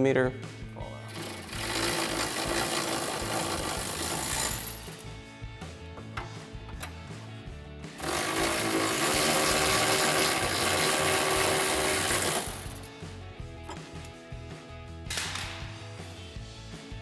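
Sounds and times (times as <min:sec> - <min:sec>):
impact wrench running: 0:01.1 - 0:05.0, 0:08.0 - 0:12.9.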